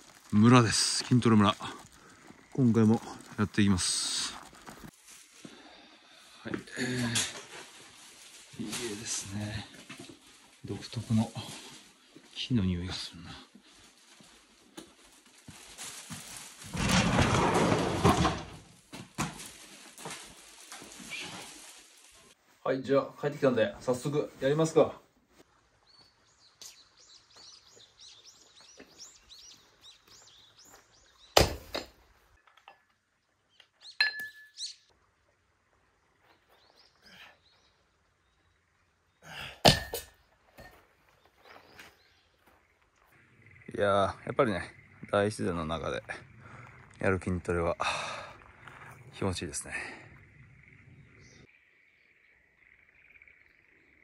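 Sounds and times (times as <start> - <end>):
small birds chirping: 0.0 - 7.0, 20.4 - 39.5, 40.1 - 54.0.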